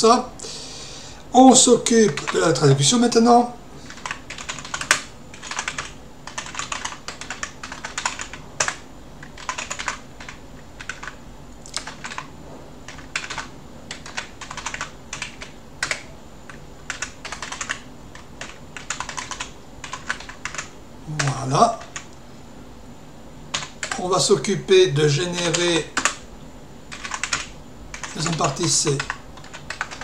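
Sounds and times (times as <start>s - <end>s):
computer keyboard typing: 1.9s - 2.5s, 3.8s - 12.3s, 12.9s - 22.2s, 23.5s - 24.0s, 25.2s - 26.3s, 26.9s - 30.0s.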